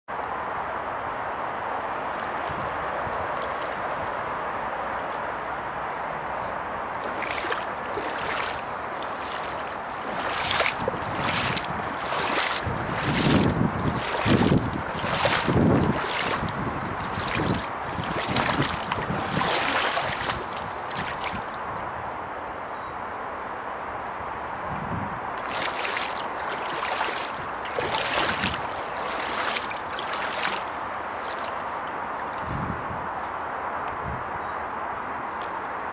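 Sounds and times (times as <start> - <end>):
steady outdoor hiss: 0.1 - 35.9
grass and leaves rustling: 2.0 - 5.3, 6.0 - 22.3, 25.3 - 32.6
footsteps on waterlogged ground: 2.1 - 5.2, 6.8 - 22.1, 25.3 - 32.5.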